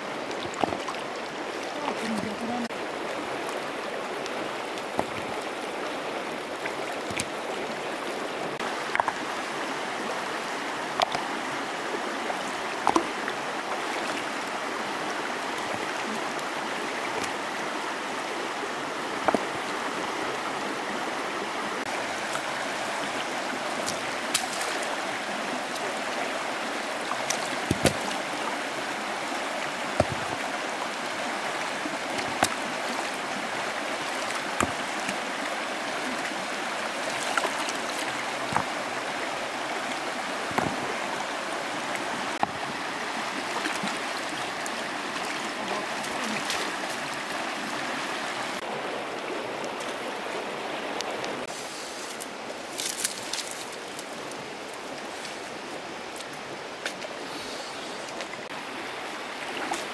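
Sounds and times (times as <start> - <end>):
shallow river flowing: 0.0 - 59.9
stones knocking on stones: 8.8 - 9.2, 19.2 - 19.5, 30.0 - 30.4.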